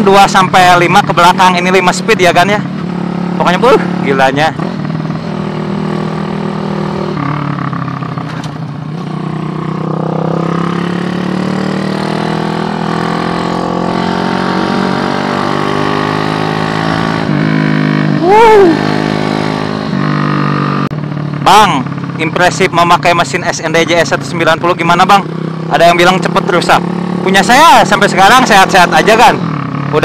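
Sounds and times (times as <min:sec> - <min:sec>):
motorcycle engine accelerating: 0:00.0 - 0:30.0.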